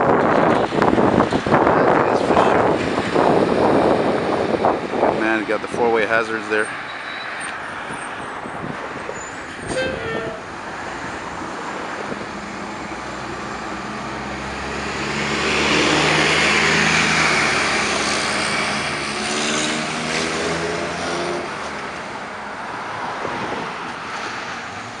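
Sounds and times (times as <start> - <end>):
cars passing: 0.0 - 25.0
bus passing: 6.8 - 25.0.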